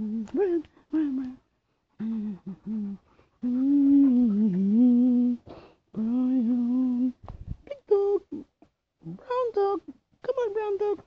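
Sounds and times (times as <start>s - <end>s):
person humming low notes: 2.0s - 5.4s.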